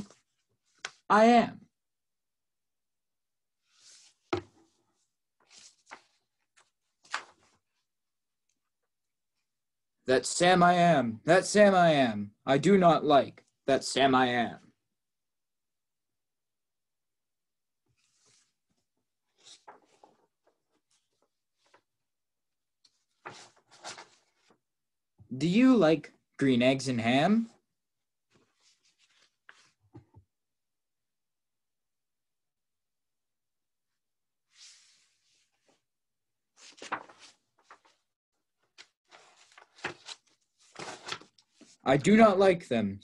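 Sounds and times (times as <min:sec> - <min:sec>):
paper pages rustling: 0:03.6 - 0:07.9, 0:17.9 - 0:21.9, 0:22.8 - 0:24.6, 0:28.3 - 0:30.0, 0:36.5 - 0:41.8.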